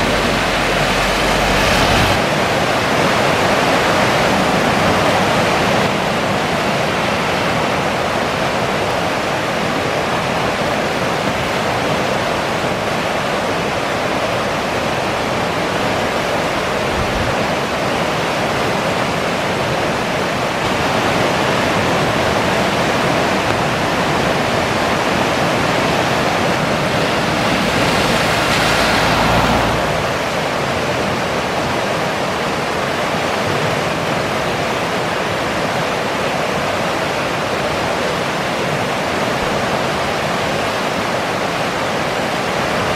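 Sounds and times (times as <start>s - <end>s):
low rumble: 0.0s - 2.5s, 26.0s - 30.6s
river rushing: 0.0s - 42.9s.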